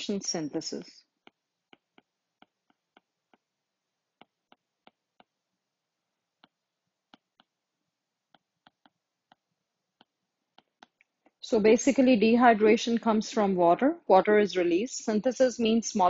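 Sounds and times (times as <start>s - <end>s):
stylus tapping on tablet screen: 1.2s - 5.4s, 6.3s - 7.6s, 8.2s - 11.4s.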